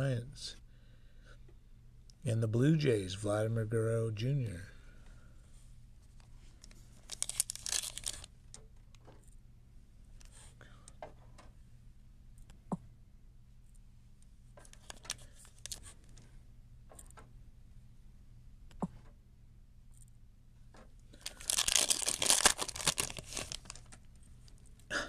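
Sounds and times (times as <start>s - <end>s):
foil wrapper tearing and crinkling: 7.0s - 8.3s, 14.7s - 15.9s, 21.2s - 24.1s.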